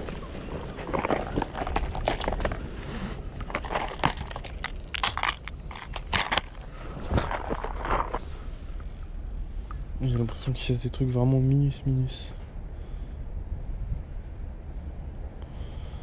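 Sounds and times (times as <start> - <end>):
plastic box clicks and clatters: 0.8 - 2.6, 3.4 - 8.2.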